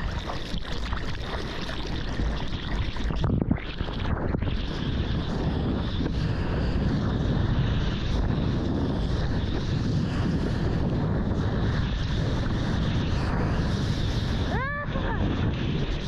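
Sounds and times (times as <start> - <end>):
wind buffeting microphone: 0.0 - 16.0
sea water and surf rushing: 4.0 - 16.0.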